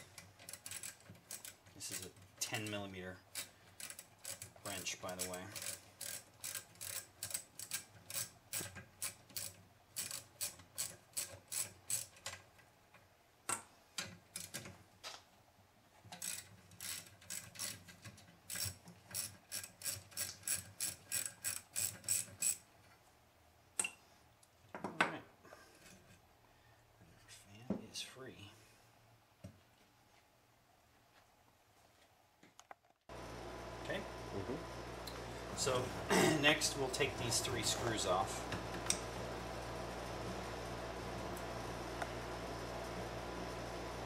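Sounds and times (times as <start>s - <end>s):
ratcheting wrench clicking: 0.1s - 2.1s, 3.3s - 12.3s, 16.2s - 22.6s.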